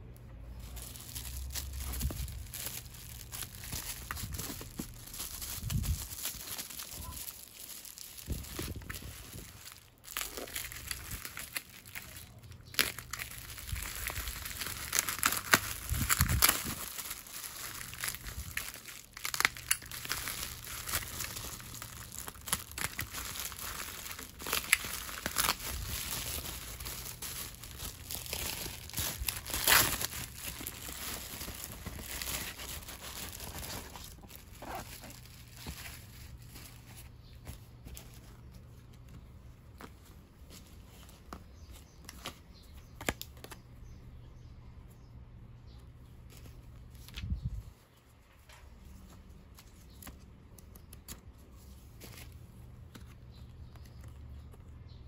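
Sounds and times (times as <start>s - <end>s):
bubble wrap crinkling and crackling: 0.4s - 44.0s.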